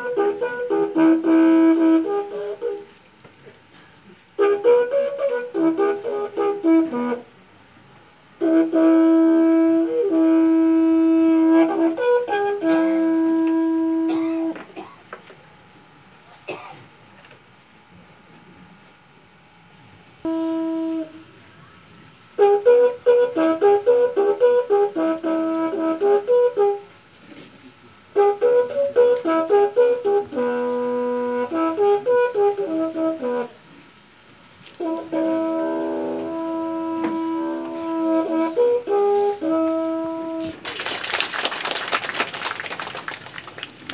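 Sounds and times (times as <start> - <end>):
trumpet playing quick notes: 0.0 - 3.0, 4.3 - 7.3, 8.4 - 14.6, 20.3 - 21.3, 22.4 - 26.9, 28.1 - 33.7, 34.7 - 40.7.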